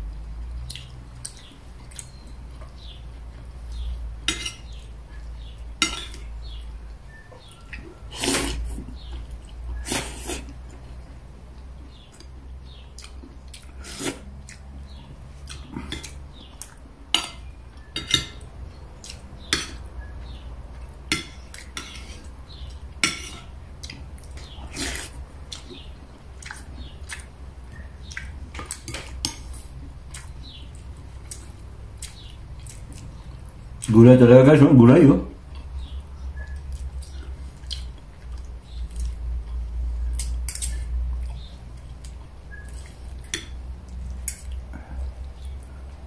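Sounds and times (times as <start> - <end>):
low steady hum: 0.0 - 46.0
cutlery clinking on dishes: 4.2 - 4.8, 5.8 - 6.2, 17.1 - 18.4, 19.5 - 19.8, 21.1 - 22.1, 23.0 - 23.5, 40.2 - 40.8.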